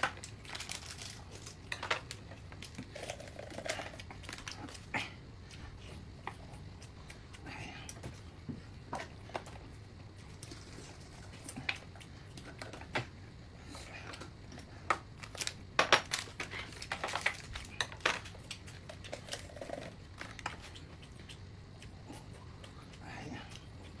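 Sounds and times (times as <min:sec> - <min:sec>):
packaging crinkling: 0:00.0 - 0:02.8, 0:15.2 - 0:18.6.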